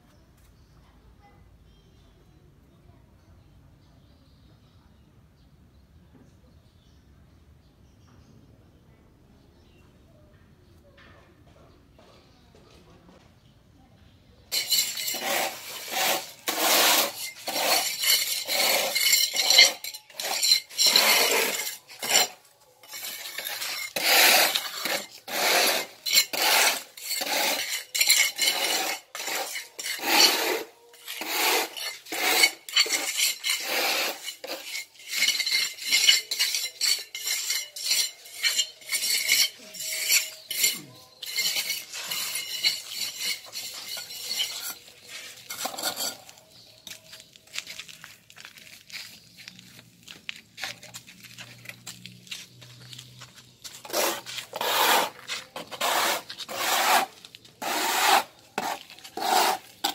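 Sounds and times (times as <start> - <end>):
trowel scraping mortar and brick: 14.5 - 59.9.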